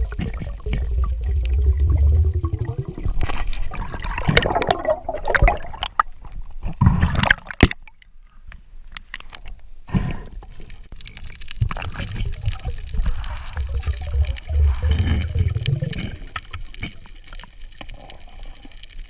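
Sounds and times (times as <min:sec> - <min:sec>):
low underwater rumble: 0:00.0 - 0:07.2, 0:11.0 - 0:17.2
underwater gurgling and sloshing: 0:00.0 - 0:19.0.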